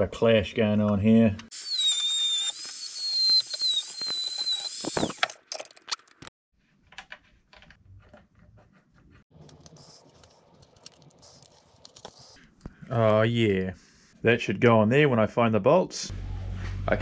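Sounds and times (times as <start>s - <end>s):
power tool whining: 1.5s - 5.3s.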